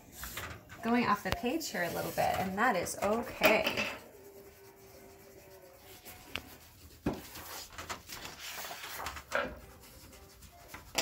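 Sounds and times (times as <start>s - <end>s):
crayon scribbling on paper: 0.2s - 11.0s
paper thump and rustle: 7.0s - 9.6s.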